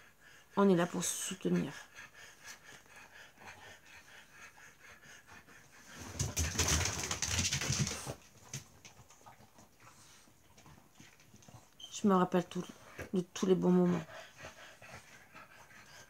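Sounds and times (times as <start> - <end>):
dog rasping breath: 0.0 - 8.2, 12.6 - 16.0.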